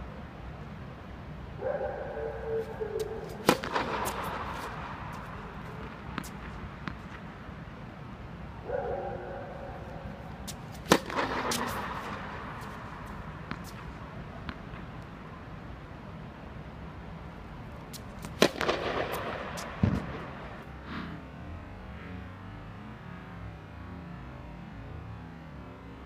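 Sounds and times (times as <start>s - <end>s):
ball bounces: 3.0s - 7.3s, 10.5s - 14.9s, 18.0s - 20.6s
tennis racket hitting ball: 3.0s - 7.3s, 10.4s - 14.6s, 17.9s - 20.6s.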